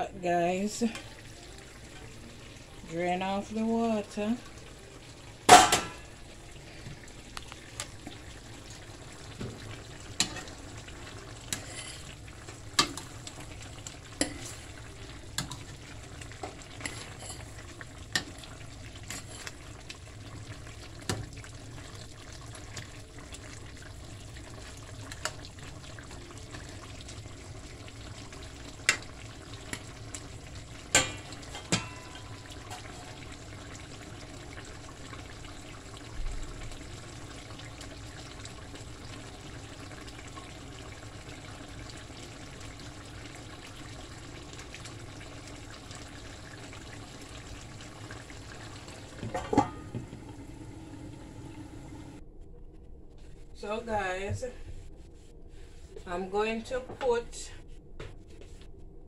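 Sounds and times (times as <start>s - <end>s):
food sizzling: 0.0s - 52.2s
metal pot lid clanking: 5.5s - 6.1s, 30.9s - 33.0s, 49.2s - 50.1s.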